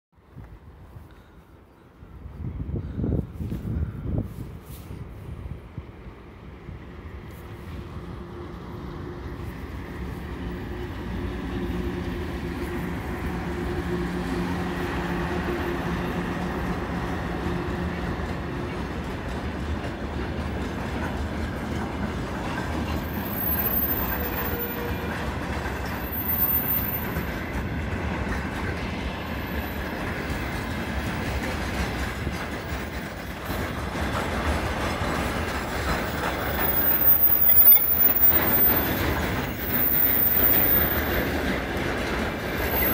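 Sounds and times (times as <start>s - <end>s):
electric locomotive hum: 0.4s - 42.9s
train wheels clickety-clack: 7.3s - 42.9s
high wheel squeals: 23.1s - 25.1s, 25.8s - 27.2s, 36.5s - 41.2s, 42.6s - 42.9s.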